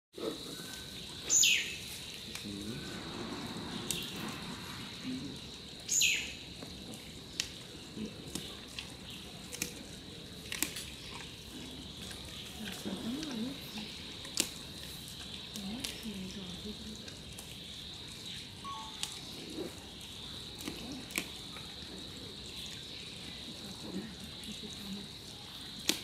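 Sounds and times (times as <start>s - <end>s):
thin steady high whine: 18.6s - 19.6s.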